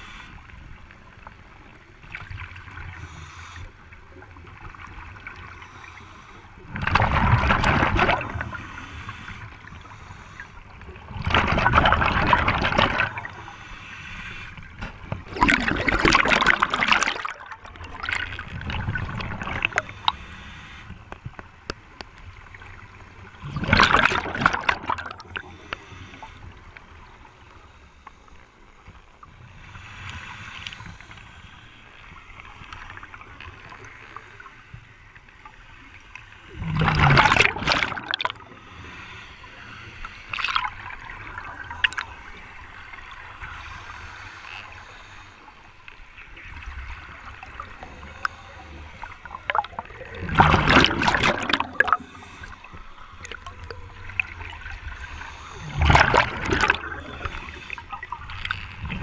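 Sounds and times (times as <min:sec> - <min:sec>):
faint diver breaths: 0:00.0 - 0:07.0, 0:08.2 - 0:11.2, 0:12.9 - 0:59.0
regulator bubbles rushing: 0:49.5 - 0:52.0, 0:55.8 - 0:57.5.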